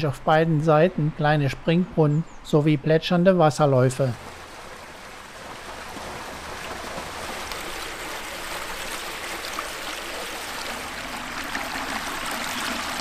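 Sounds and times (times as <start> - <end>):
water babbling in channel: 0.0 - 13.0
fountain water splashing: 4.0 - 13.0.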